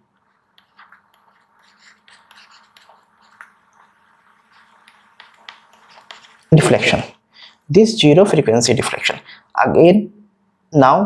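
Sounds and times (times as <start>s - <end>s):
stylus scratching on tablet: 0.0s - 7.6s
faint steady hum: 0.0s - 10.9s.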